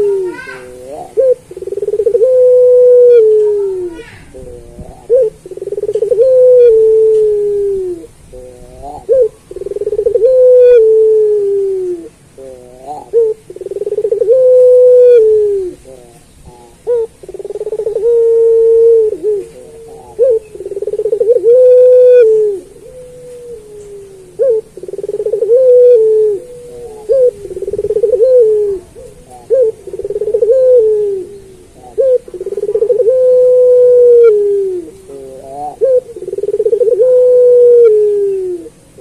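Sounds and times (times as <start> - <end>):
dove cooing: 0.0 - 39.0.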